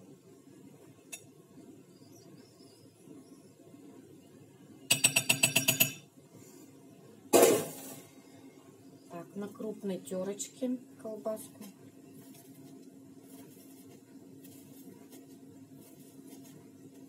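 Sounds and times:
metal spoon tapping glass dish: 0:04.9 - 0:06.0.

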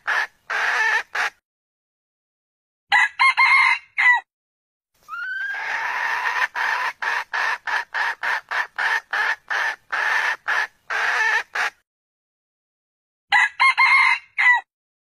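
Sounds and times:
junglefowl calling: 0:00.0 - 0:01.4, 0:05.0 - 0:11.8.

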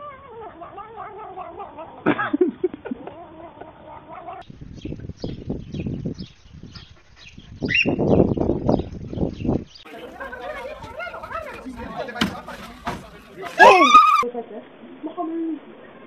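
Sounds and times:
cat yowling: 0:13.6 - 0:14.2.

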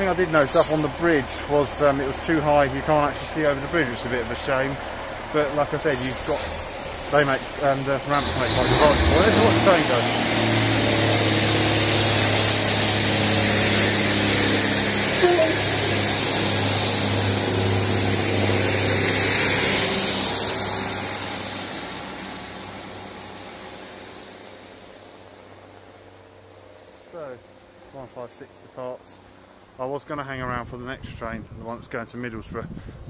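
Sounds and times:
broad hiss: 0:00.0 - 0:26.0
diesel train engines droning: 0:00.0 - 0:30.8.

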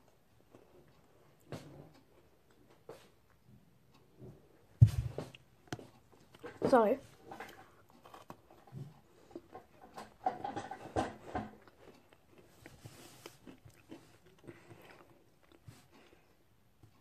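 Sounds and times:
biscuit crunching: 0:07.6 - 0:08.7, 0:11.5 - 0:16.2.

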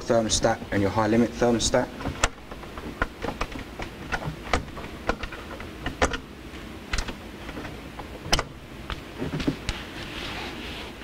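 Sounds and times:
scraping rustle: 0:09.2 - 0:11.0.

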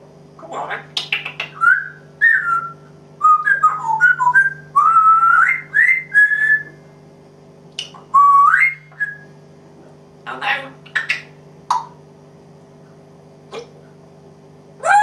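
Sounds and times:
parrot whistling: 0:01.2 - 0:06.8, 0:07.8 - 0:09.3.

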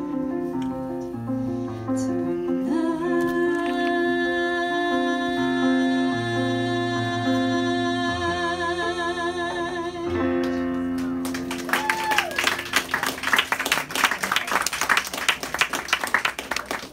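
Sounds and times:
woman singing with vibrato: 0:02.6 - 0:10.4
audience clapping: 0:10.4 - 0:16.9.

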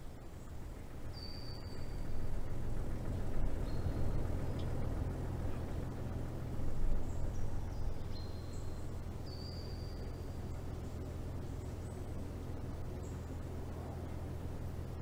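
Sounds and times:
vehicle rumble from inside cabin: 0:00.0 - 0:15.0
faint high whistling tones: 0:07.7 - 0:10.3.

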